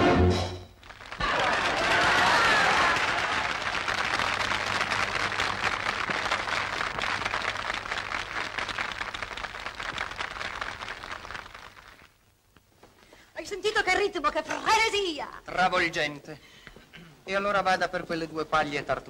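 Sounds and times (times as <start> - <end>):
audience applauding: 0.8 - 12.3.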